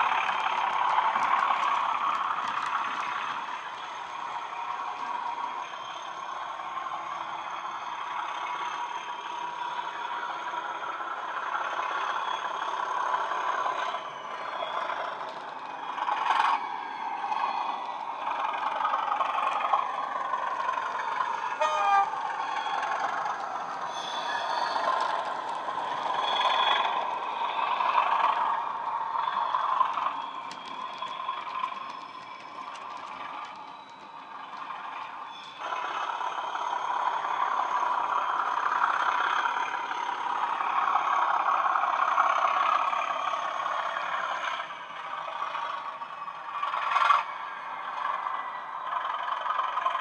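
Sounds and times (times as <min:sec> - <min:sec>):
diesel engine through small speakers: 0:00.0 - 0:50.0.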